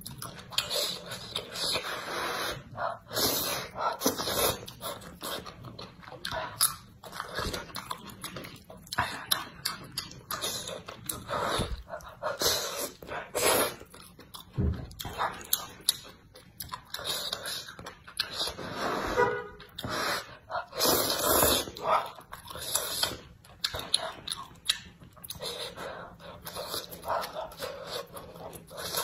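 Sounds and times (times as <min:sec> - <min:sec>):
wet chewing: 0:00.0 - 0:18.8, 0:19.5 - 0:29.0
person slurping noodles: 0:00.6 - 0:05.4, 0:10.3 - 0:13.9, 0:18.3 - 0:21.9.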